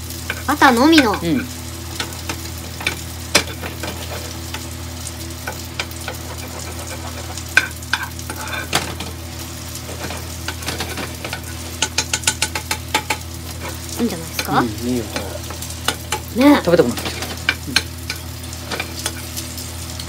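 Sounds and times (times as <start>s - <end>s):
fish sizzling in butter: 0.0s - 20.0s
spoon scraping and clicking on pan: 0.2s - 4.7s, 5.4s - 9.2s, 9.9s - 13.8s, 15.2s - 16.3s, 17.0s - 19.5s.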